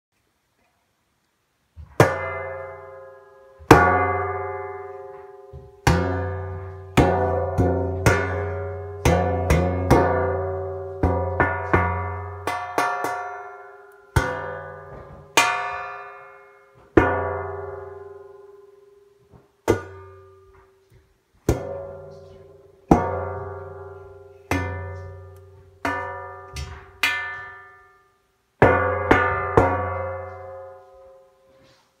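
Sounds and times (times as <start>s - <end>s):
metal pan struck ringing: 2.0s - 18.9s, 21.5s - 31.3s.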